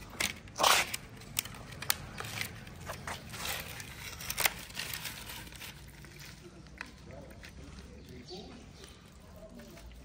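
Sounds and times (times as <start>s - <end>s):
sharp plastic clicks and rustles: 0.0s - 8.2s.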